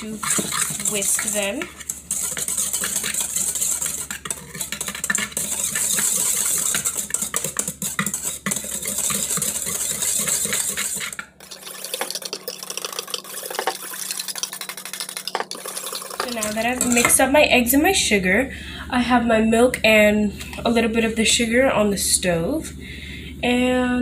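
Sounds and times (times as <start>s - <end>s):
whisk scraping and clinking in bowl: 0.0s - 17.3s.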